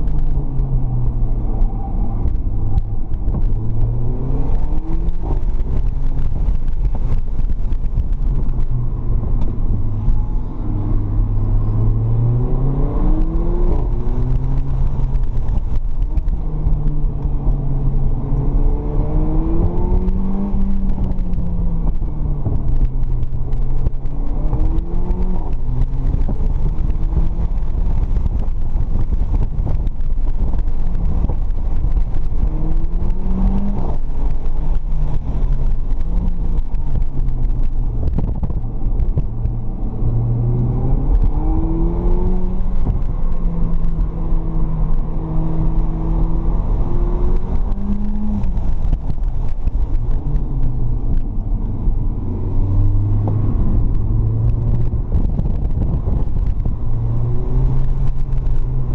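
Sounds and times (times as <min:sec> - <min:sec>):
car engine accelerating: 0:00.0 - 0:58.9
low road rumble: 0:00.0 - 0:58.9.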